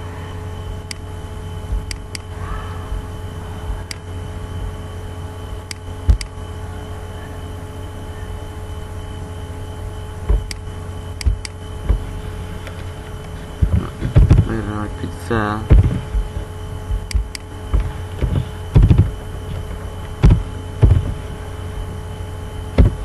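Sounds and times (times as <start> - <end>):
faint high whine: 0.0 - 23.0
low electrical hum: 0.0 - 23.0
computer mouse clicks: 1.9 - 2.3.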